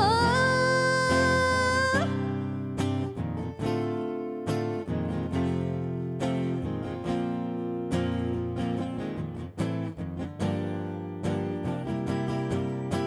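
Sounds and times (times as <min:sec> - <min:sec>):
acoustic guitar strumming chords: 0:00.0 - 0:13.0.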